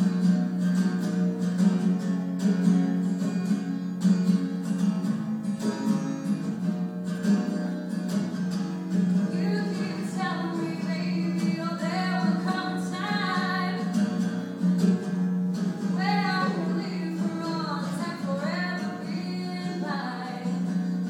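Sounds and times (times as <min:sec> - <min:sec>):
acoustic guitar strumming: 0:00.0 - 0:21.0
woman singing: 0:09.2 - 0:14.3, 0:15.8 - 0:21.0.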